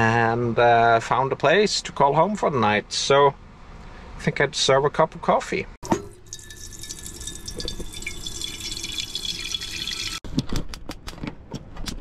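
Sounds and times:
faucet water running into container: 5.8s - 10.2s.

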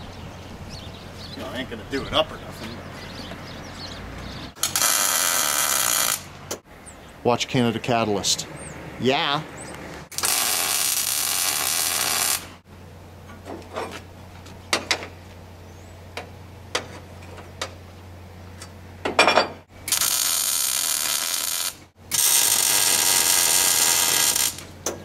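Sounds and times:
welder arc hissing: 4.6s - 6.3s, 10.1s - 12.6s, 19.9s - 24.7s.

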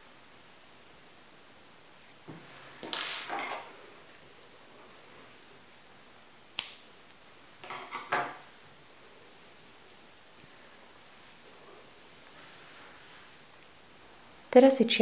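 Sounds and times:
sharp click: 6.6s - 6.9s
yarn hat rustling: 8.4s - 13.9s.

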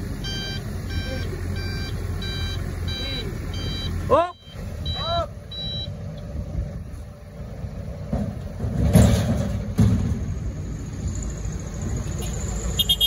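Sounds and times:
heavy diesel engine running: 0.0s - 13.0s
loud metal clanks: 8.0s - 10.5s.

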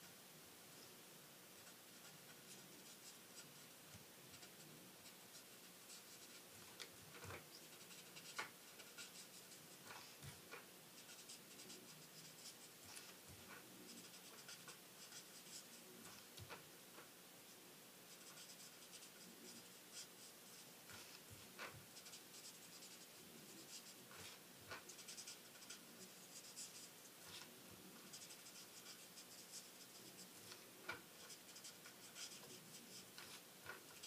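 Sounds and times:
marker scratching on cardstock: 4.3s - 17.1s, 18.1s - 34.0s.

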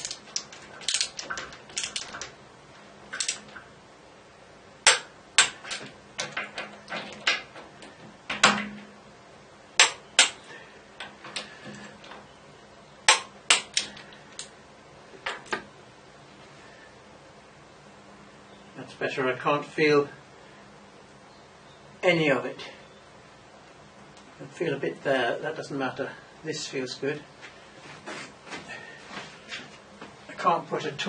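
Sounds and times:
torque wrench clicking: 0.0s - 2.3s, 3.2s - 3.5s.

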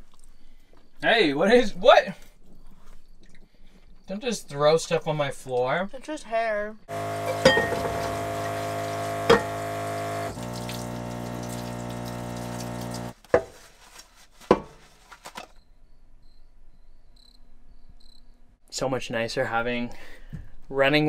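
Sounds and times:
electric water pump humming: 6.9s - 13.2s
tap water running into sink: 6.9s - 13.2s.

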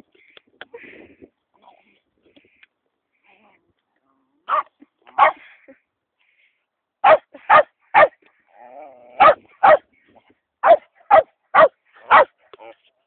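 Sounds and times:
dog barking: 4.5s - 5.4s, 7.0s - 8.2s, 9.2s - 9.8s, 10.6s - 12.3s.

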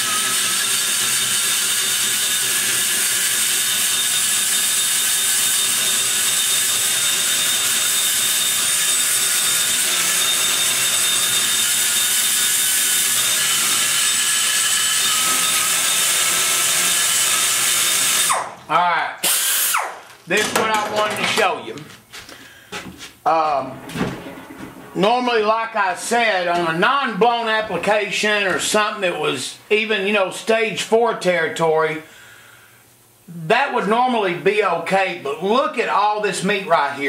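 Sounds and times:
die grinder cutting metal: 0.0s - 18.6s, 19.2s - 20.0s.

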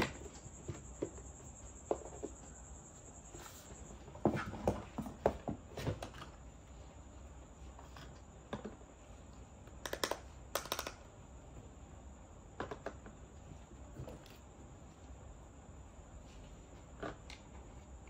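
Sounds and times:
plastic toy pieces clicking: 9.8s - 11.0s.

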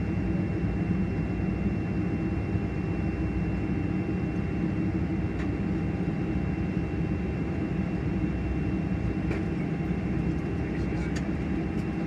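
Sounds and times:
jet engines rumbling: 3.7s - 12.0s.

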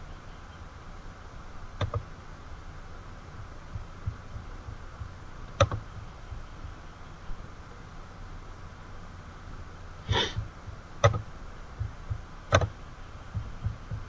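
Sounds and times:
faint steady hum: 0.0s - 14.0s
computer mouse clicks: 1.8s - 2.1s, 5.5s - 5.9s, 11.0s - 11.2s, 12.5s - 12.7s.

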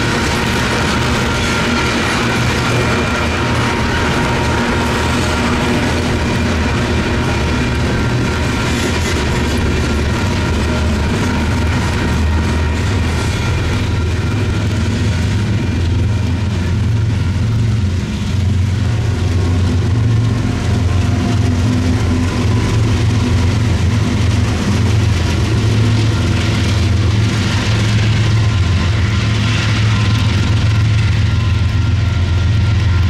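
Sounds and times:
diesel locomotive engine drone: 0.0s - 33.0s.

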